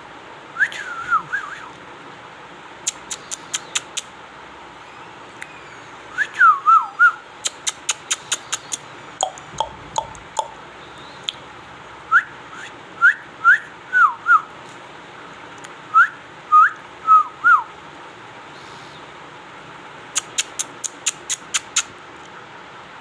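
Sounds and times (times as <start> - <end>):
sharp clicks: 2.9 - 4.1, 7.4 - 10.5, 20.1 - 21.9.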